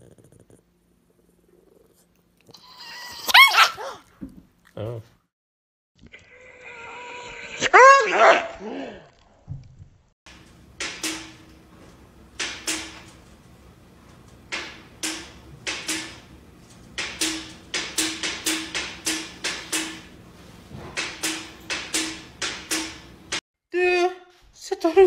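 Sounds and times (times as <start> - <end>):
window blind slats clacking: 10.3 - 23.4.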